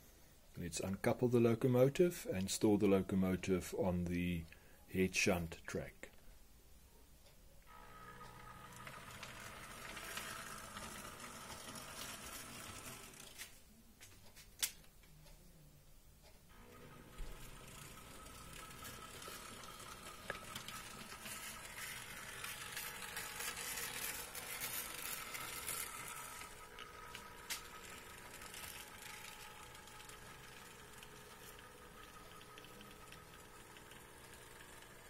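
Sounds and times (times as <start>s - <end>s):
model locomotive motor whirring: 7.7s - 13.5s, 16.5s - 35.0s.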